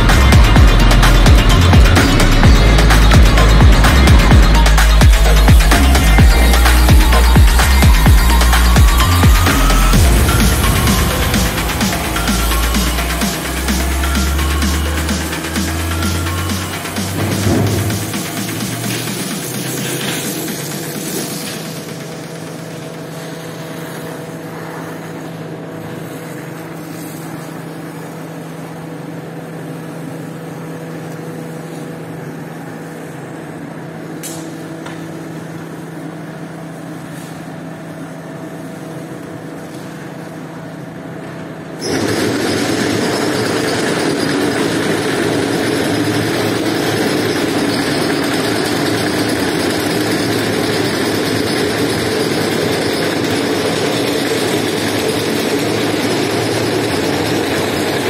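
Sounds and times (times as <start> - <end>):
rough loud machine noise: 0.0 - 29.8, 41.7 - 58.0
machinery humming: 0.0 - 58.0.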